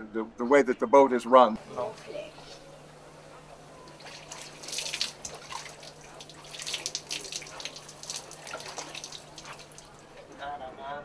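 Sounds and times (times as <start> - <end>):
faint low hum: 1.6 - 11.0
plastic dipper scooping water: 3.8 - 10.1
water poured splashing into pot: 3.9 - 10.1.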